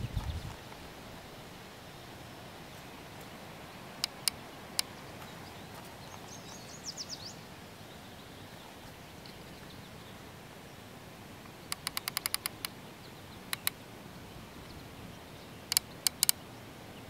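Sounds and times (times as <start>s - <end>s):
outdoor background: 0.0s - 17.0s
bird chirping: 1.9s - 10.9s, 11.5s - 17.0s
rifle scope turret clicking: 4.0s - 4.4s, 11.7s - 12.7s, 13.5s - 13.8s, 15.7s - 16.4s.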